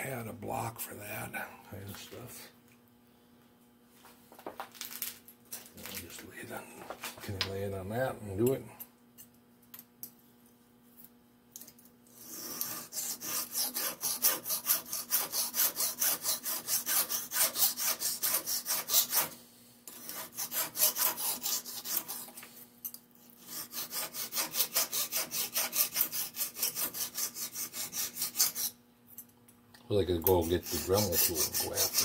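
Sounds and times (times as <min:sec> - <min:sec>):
hand file rasping on metal: 0:12.1 - 0:22.4, 0:23.4 - 0:28.8, 0:30.2 - 0:32.0.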